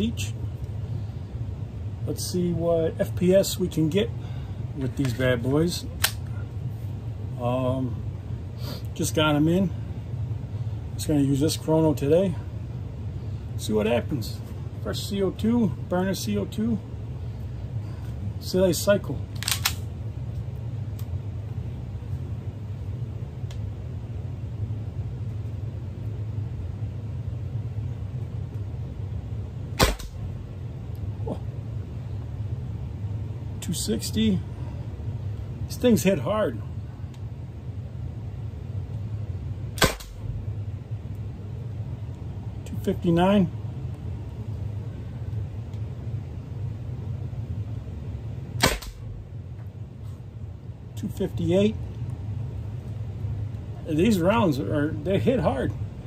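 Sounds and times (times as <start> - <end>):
steady low hum: 0.0 - 56.0
sharp launcher shot: 29.8 - 30.2, 39.8 - 40.2, 48.6 - 49.1.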